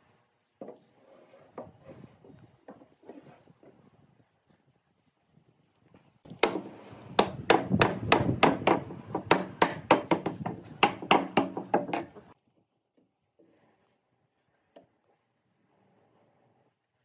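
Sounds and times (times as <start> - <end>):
hammer blows on wood: 6.4 - 11.9.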